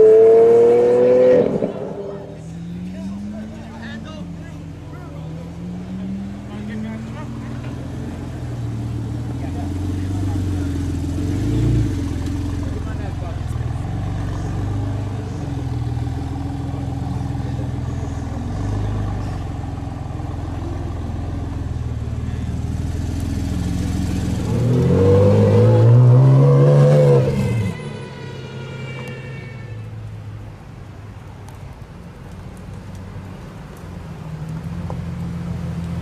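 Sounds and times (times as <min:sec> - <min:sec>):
sports car engine revving: 0:00.0 - 0:02.3, 0:05.4 - 0:27.8
traffic engine noise: 0:00.0 - 0:36.0.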